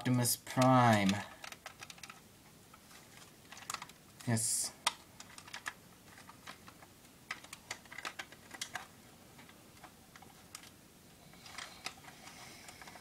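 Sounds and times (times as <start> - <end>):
plastic toy parts clicking: 0.0 - 2.2, 3.2 - 10.8, 11.4 - 13.0.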